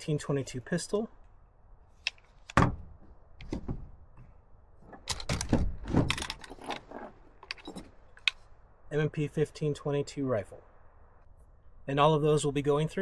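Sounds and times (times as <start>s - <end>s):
firearm clunks and metallic clicks: 7.4s - 8.5s.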